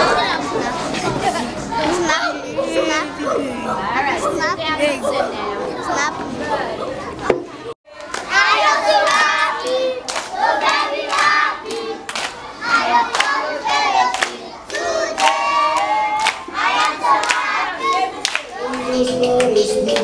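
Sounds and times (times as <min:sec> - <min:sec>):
children singing and chanting: 0:00.0 - 0:20.0
hand claps: 0:09.0 - 0:12.4, 0:14.1 - 0:20.0.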